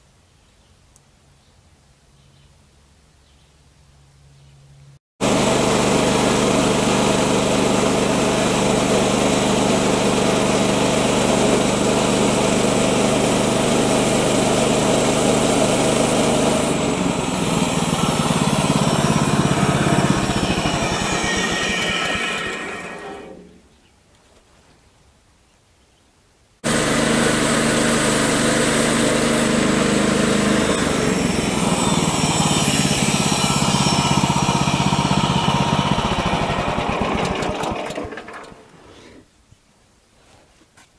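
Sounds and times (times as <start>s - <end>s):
bandsaw mill engine running: 5.2s - 23.6s, 26.6s - 38.9s
band blade sawing wood: 16.2s - 23.6s, 30.2s - 37.6s.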